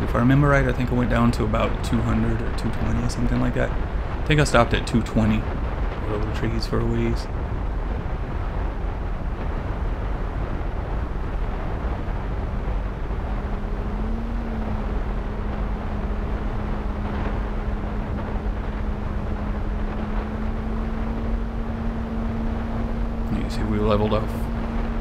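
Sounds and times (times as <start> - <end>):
wind rushing over camera: 0.0 - 25.0
electric motor and propeller hum: 6.9 - 25.0.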